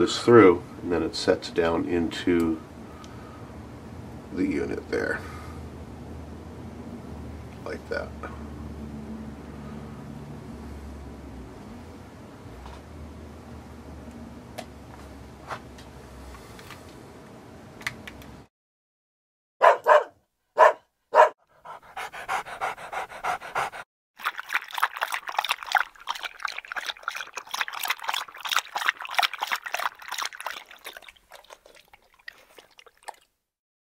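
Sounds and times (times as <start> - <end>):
dog barking: 19.6 - 21.4
dog panting rapidly: 21.4 - 23.9.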